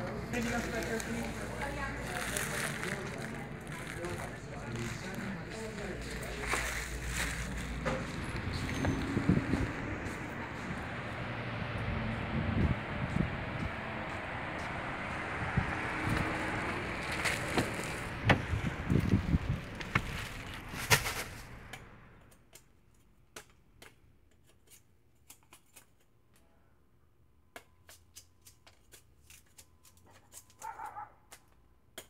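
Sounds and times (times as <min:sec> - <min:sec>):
footstep scuffs and taps: 0:00.0 - 0:10.8, 0:12.1 - 0:16.4, 0:17.0 - 0:21.8
wind on microphone: 0:08.2 - 0:17.1, 0:18.0 - 0:19.9.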